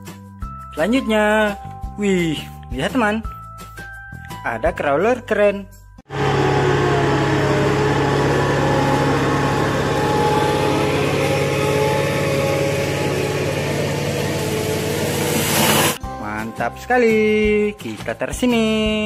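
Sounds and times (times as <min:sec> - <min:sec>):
crane diesel engine running: 0:06.1 - 0:16.0.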